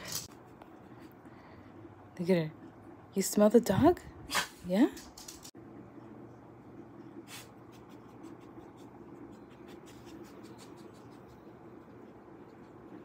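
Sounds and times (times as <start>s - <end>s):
small dog sniffing: 7.3s - 12.9s.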